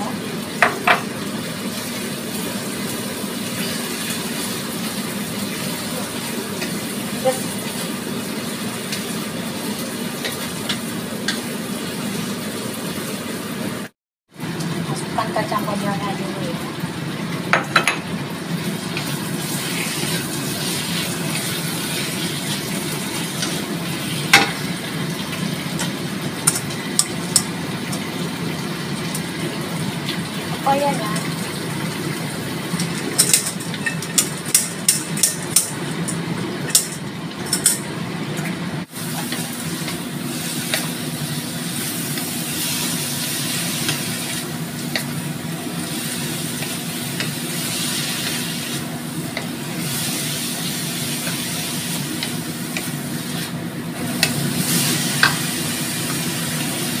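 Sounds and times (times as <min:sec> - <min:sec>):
food sizzling in a wok: 0:00.0 - 0:57.0.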